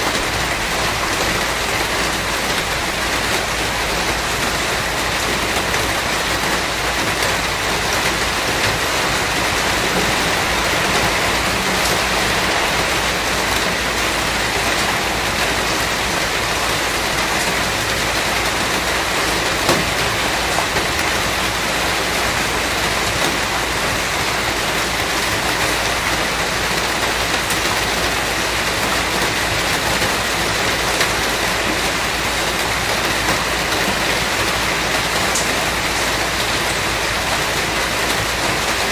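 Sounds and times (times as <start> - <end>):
steady rain hiss: 0.0 - 38.9
rain drop taps: 35.3 - 35.6.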